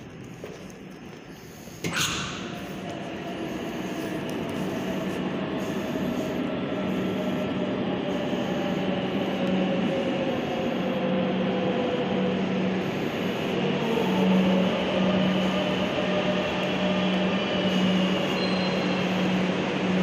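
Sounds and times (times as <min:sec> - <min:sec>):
metro train rumble and whine: 0:00.0 - 0:20.0.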